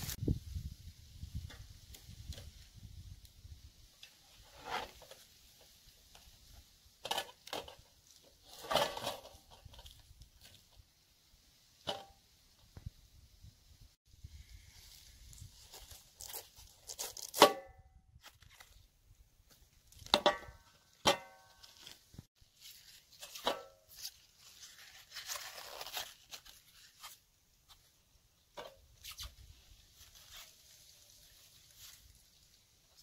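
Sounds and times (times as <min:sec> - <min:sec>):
leaves rustling: 0:00.0 - 0:11.9, 0:14.2 - 0:17.4, 0:18.1 - 0:33.0
cabbage leaves snapping and tearing: 0:15.3 - 0:17.6, 0:18.2 - 0:18.8, 0:22.6 - 0:27.2.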